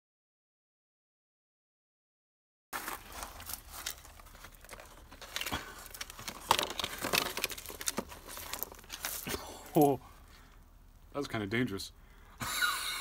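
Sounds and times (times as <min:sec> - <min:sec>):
broken glass and plastic crackling: 0:02.8 - 0:10.0.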